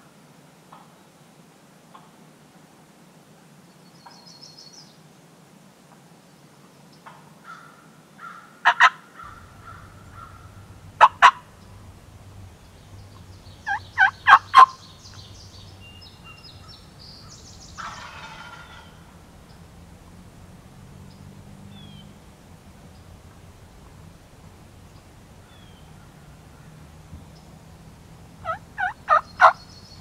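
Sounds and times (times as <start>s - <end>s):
faint songbirds: 3.6s - 5.3s, 9.2s - 30.0s
turkey call yelps: 7.4s - 11.7s, 13.1s - 19.2s, 28.4s - 29.8s
turkey gobble: 7.5s - 11.9s, 12.9s - 19.5s, 28.4s - 29.6s.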